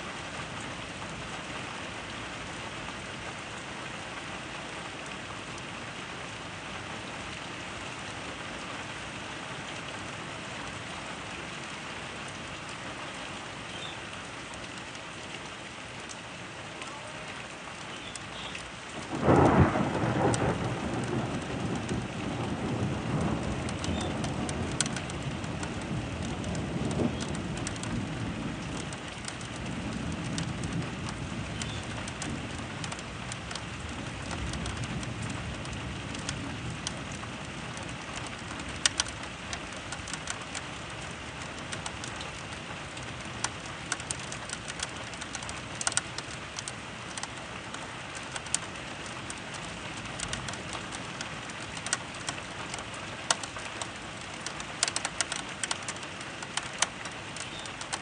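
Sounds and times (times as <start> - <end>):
raindrops tapping near microphone: 0.0 - 58.0
steady rain: 0.0 - 58.0
low thunder rumble: 19.0 - 40.4.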